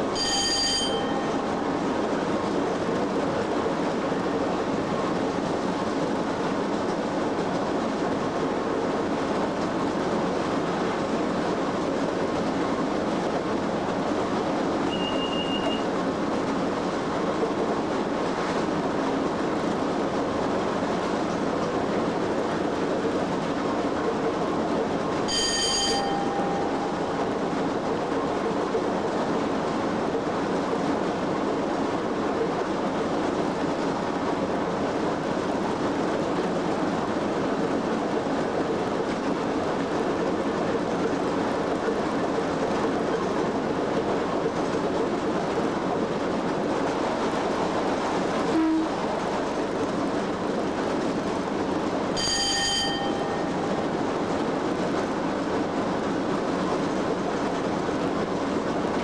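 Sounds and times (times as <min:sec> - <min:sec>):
locomotive running noise: 0:00.0 - 0:59.0
short ringing ding: 0:00.1 - 0:01.3, 0:25.3 - 0:26.7, 0:52.2 - 0:53.5.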